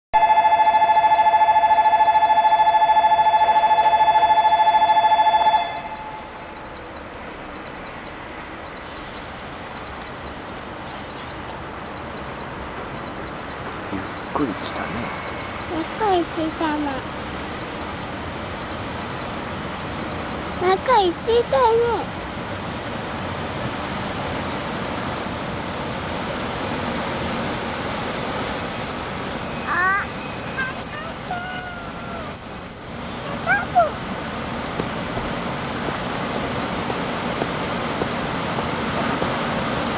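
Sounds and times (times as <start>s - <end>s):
electronic two-tone alarm: 0.2s - 8.9s
train wheels rushing on rail: 0.2s - 39.9s
steady background noise: 4.3s - 39.9s.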